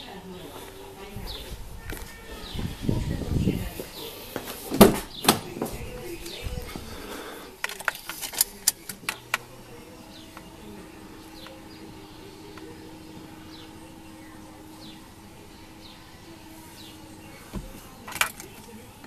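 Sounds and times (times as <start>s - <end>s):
faint birds chirping: 0.0s - 19.0s
ignition clicks: 7.6s - 19.0s.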